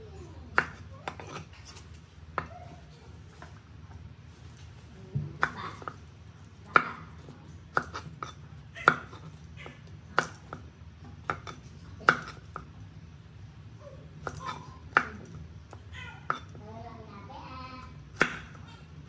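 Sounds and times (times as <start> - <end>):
cleaver chopping on wooden board: 7.7 - 9.4, 10.2 - 12.6.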